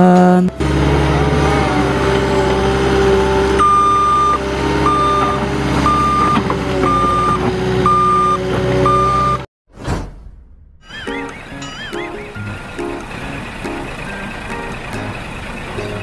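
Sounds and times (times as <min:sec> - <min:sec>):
diesel engine running: 0:00.2 - 0:09.5, 0:11.2 - 0:16.0
reversing alarm beeps: 0:03.6 - 0:09.5.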